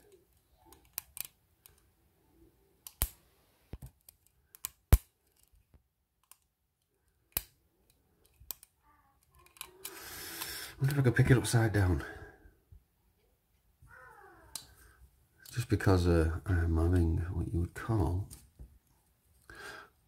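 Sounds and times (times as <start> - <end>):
lock pick clicking in padlock: 0.0 - 1.8, 4.0 - 5.6, 6.2 - 6.5, 7.3 - 10.5.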